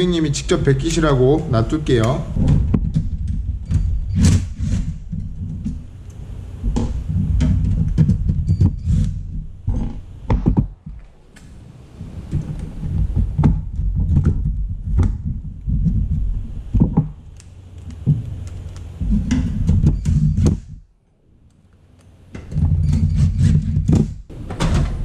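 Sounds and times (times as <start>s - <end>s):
clicks and knocks of parts: 16.8s - 25.0s.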